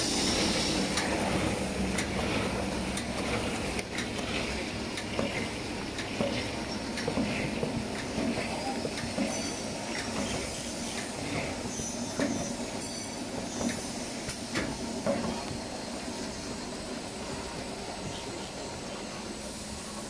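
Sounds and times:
packing machine rumble: 0.0 - 10.5.

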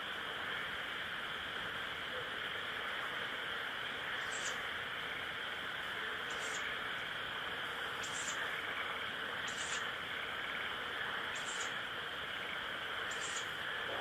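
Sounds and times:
insects chorus: 0.0 - 14.0
owl chick hissing calls: 4.2 - 4.6, 6.3 - 6.6, 8.0 - 8.4, 9.4 - 9.9, 11.3 - 11.8, 13.1 - 13.5.

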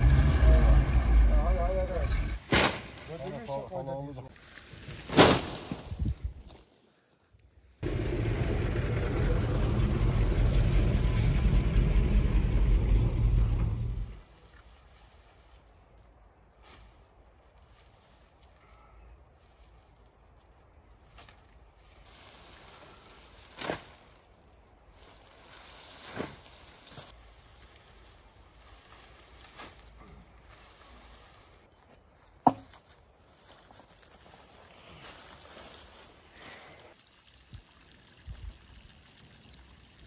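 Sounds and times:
leaves rustling: 0.0 - 7.1, 21.1 - 32.2, 32.9 - 38.2.

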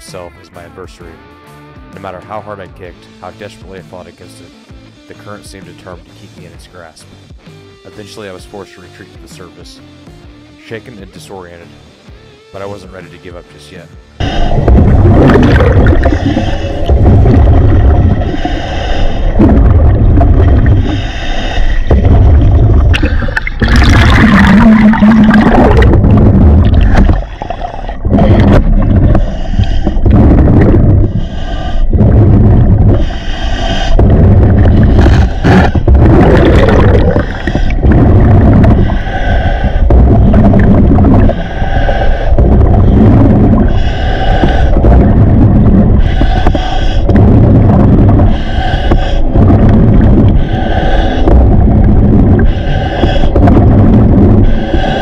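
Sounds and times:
exhaled bubbles gurgling: 14.2 - 55.0.

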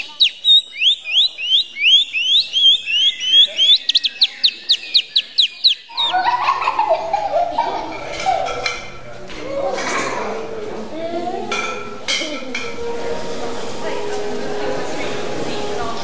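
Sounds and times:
high chirping notes: 0.0 - 9.1
voices in a large room: 0.0 - 16.0.

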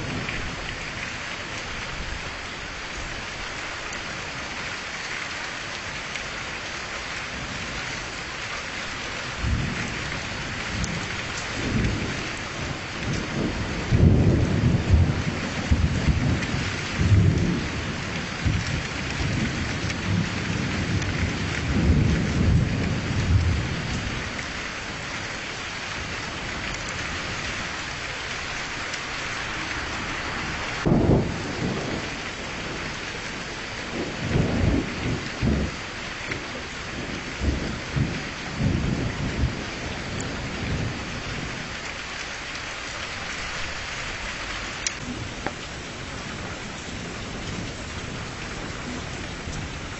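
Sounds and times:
steady rain: 0.0 - 49.9
thunder rumbling: 9.3 - 25.0, 29.4 - 41.7.

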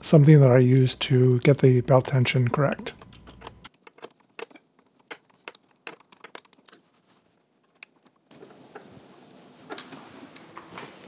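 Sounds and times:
clicks and taps of handling metal: 2.9 - 6.9.

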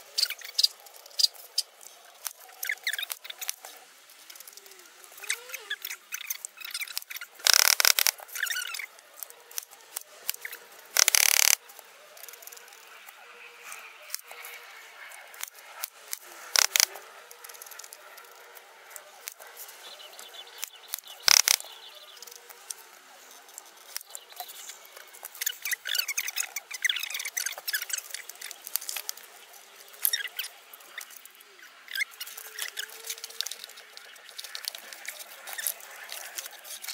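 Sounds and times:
rustling and scraping of materials: 0.0 - 36.9
sharp clicks: 6.2 - 8.2, 10.3 - 11.6, 16.1 - 16.9, 20.6 - 21.7.

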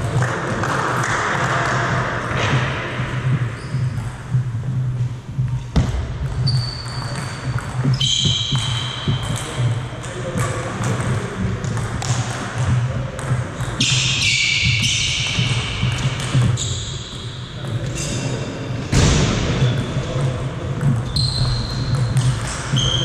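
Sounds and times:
table tennis balls bouncing: 0.0 - 18.2, 19.0 - 23.0
sneakers squeaking on floor: 1.4 - 18.9, 19.5 - 23.0
faint voices: 9.1 - 14.0.

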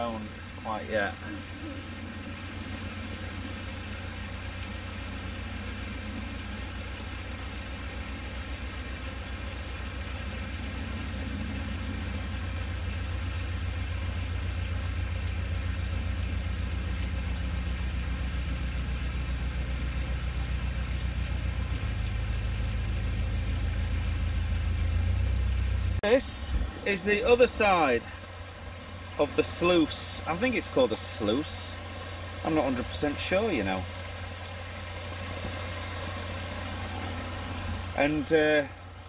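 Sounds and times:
boat engine running slowly: 0.0 - 39.0.

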